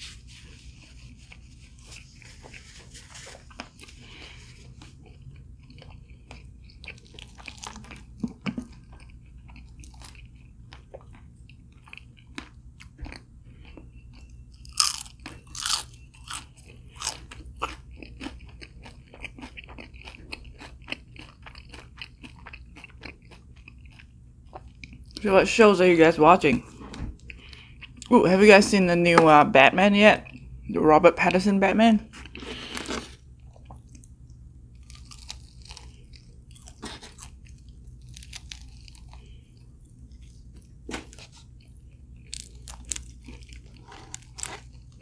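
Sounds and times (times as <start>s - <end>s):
chewing crispy fried chicken: 0.2s - 25.3s, 32.1s - 45.0s.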